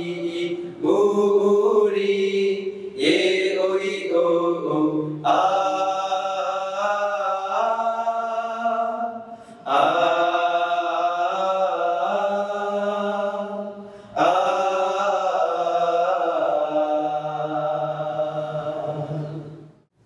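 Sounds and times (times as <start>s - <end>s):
male vocal trio singing in harmony: 0.0s - 19.8s.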